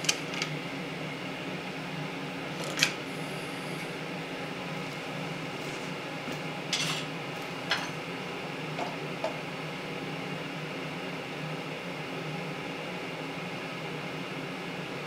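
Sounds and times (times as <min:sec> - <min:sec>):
steady background hum: 0:00.0 - 0:15.0
metal tools clinking: 0:06.7 - 0:07.0, 0:07.7 - 0:08.0.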